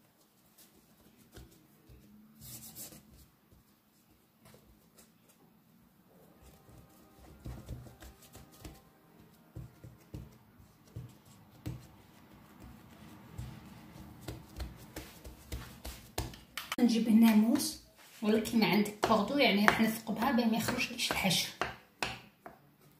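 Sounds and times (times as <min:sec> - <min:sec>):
faint background music: 0:00.0 - 0:22.9
hands patting dough: 0:06.4 - 0:22.9.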